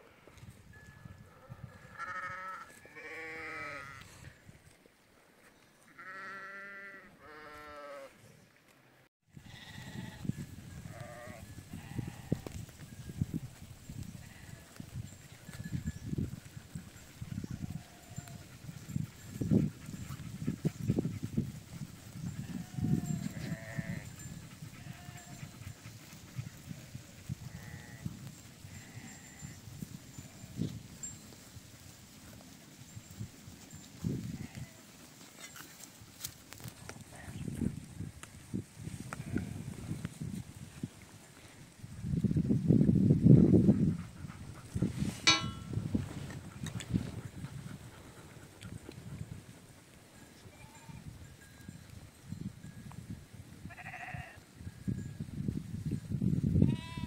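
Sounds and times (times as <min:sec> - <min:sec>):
sheep bleating: 0:01.9 - 0:04.1, 0:06.0 - 0:08.1, 0:53.7 - 0:54.4.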